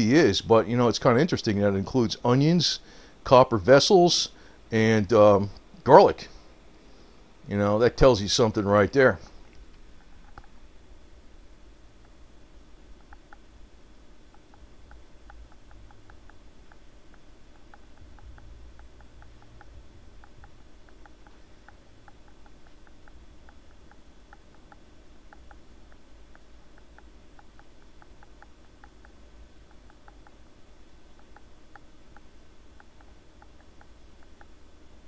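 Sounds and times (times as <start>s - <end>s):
low background rumble: 9.4s - 35.0s
faint light clicking: 13.0s - 13.4s, 14.3s - 30.4s, 31.1s - 34.6s.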